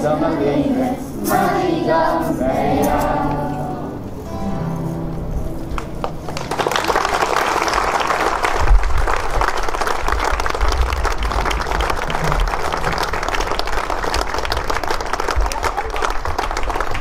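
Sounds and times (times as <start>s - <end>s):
low rumbles: 1.0s - 14.9s
audience applauding: 5.7s - 17.0s.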